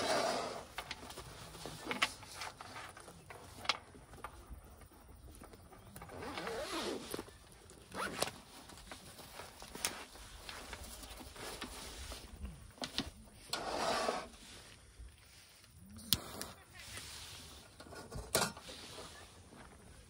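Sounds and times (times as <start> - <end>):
zipper being pulled open: 6.0 - 8.4, 13.5 - 14.4.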